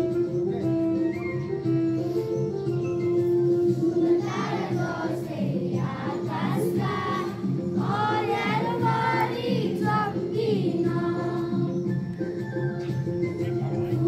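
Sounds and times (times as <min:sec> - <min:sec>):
instrumental accompaniment: 0:00.0 - 0:14.0
choir singing slow song: 0:03.8 - 0:11.8.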